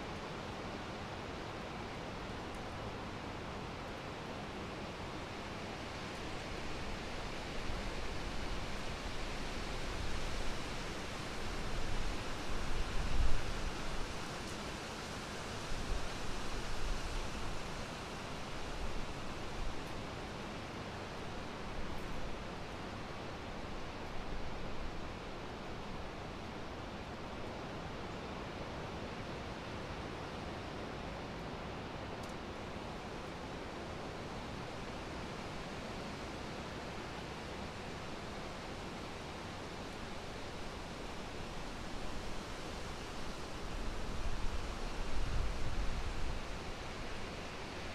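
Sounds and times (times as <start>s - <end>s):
wind blowing through trees: 0.0s - 47.9s
faint tick: 32.2s - 32.4s.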